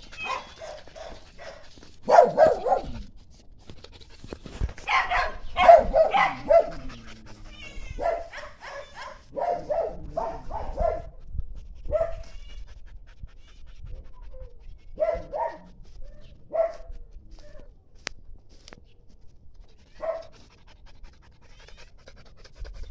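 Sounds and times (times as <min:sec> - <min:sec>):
dog whining: 0:00.0 - 0:01.1, 0:05.0 - 0:09.2
dog barking: 0:00.2 - 0:03.0, 0:04.9 - 0:07.1, 0:08.0 - 0:11.1, 0:11.9 - 0:12.3, 0:14.3 - 0:15.7, 0:16.5 - 0:16.9, 0:20.0 - 0:20.3.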